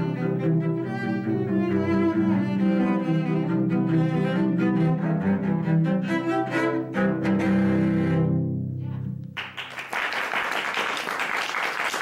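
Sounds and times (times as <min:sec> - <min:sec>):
cello duet: 0:00.0 - 0:09.3
applause: 0:09.4 - 0:12.0.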